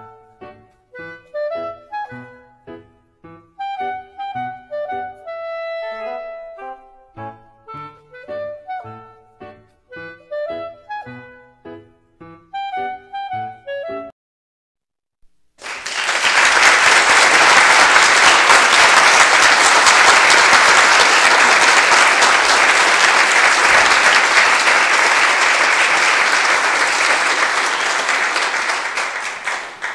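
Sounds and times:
crowd applause: 15.6s - 29.9s.

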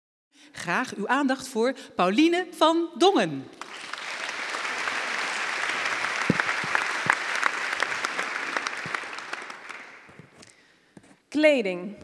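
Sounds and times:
audience applauding: 3.6s - 10.4s.

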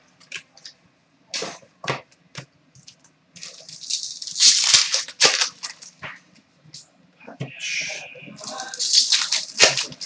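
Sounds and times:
cards rustling: 8.4s - 10.0s.

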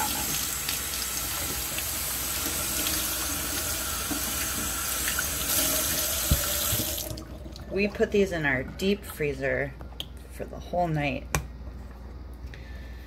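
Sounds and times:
faucet water splashing into sink: 0.0s - 7.7s.

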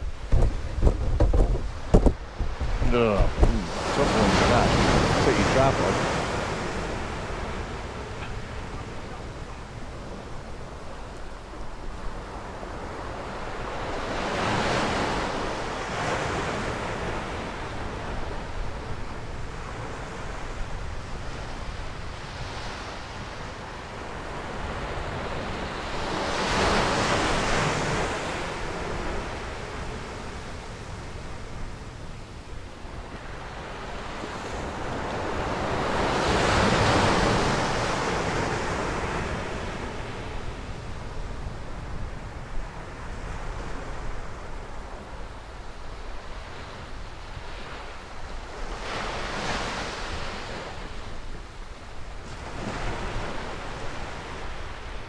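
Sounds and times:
surf breaking on sand beach: 0.0s - 32.1s, 32.8s - 45.1s
wind rumble on microphone: 0.0s - 55.0s.

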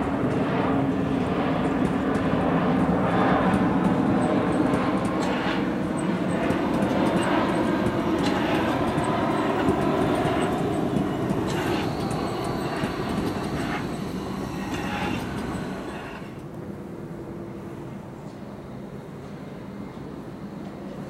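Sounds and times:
train wheels rumbling on rails: 0.0s - 16.6s
rail joints clacking: 1.6s - 16.5s.

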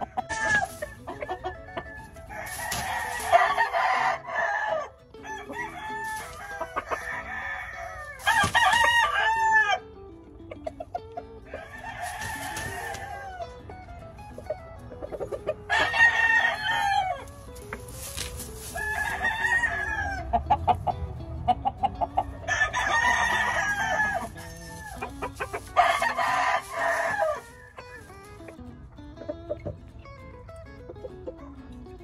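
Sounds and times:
rooster crowing: 1.4s - 9.8s, 11.5s - 13.5s, 15.7s - 20.4s, 22.4s - 28.2s.

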